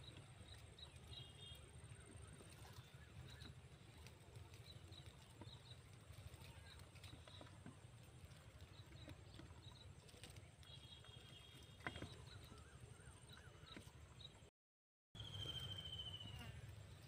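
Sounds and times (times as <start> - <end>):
faint high chirps: 15.2 - 17.0.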